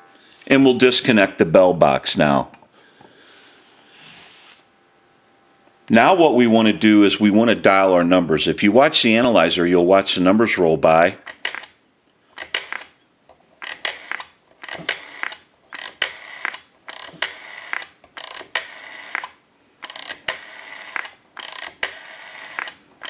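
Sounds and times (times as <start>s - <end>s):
rotary dial whirring and clicking: 12.4s - 23.0s.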